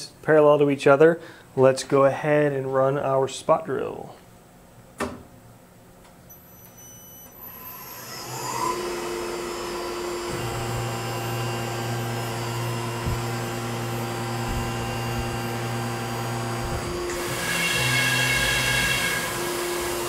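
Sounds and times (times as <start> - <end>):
mill spindle whine: 6.3 - 20.0
low steady hum: 10.2 - 17.2.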